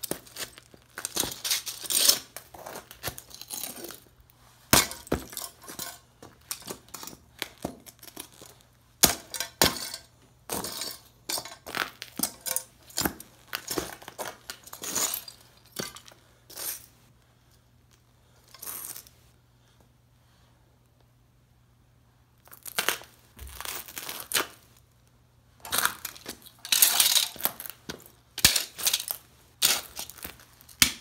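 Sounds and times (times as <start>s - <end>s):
boots stamping on concrete: 4.7s - 8.4s.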